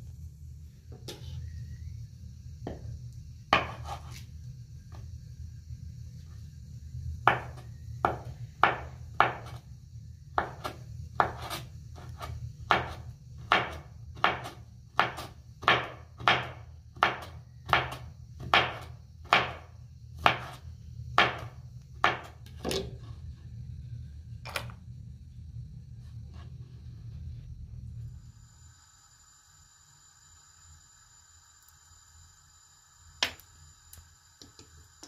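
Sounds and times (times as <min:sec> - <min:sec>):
low hum: 0:00.0 - 0:03.6, 0:19.7 - 0:31.3
knife chopping on cutting board: 0:03.5 - 0:04.2, 0:07.3 - 0:09.6, 0:10.4 - 0:19.6, 0:20.2 - 0:20.6, 0:21.2 - 0:22.8.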